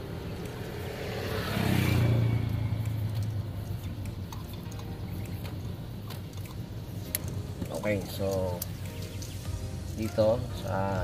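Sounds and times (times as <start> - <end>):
vehicle engine passing by: 0.0 - 6.2.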